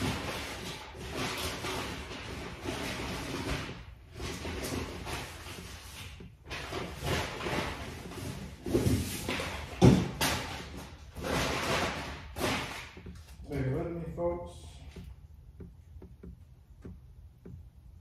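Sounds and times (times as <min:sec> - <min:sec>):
handling rustling and scraping: 0:00.0 - 0:13.5.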